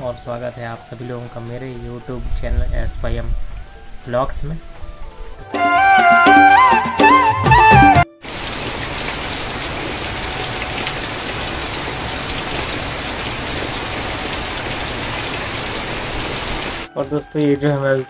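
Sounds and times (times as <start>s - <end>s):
heavy rain hissing: 8.2s - 16.9s.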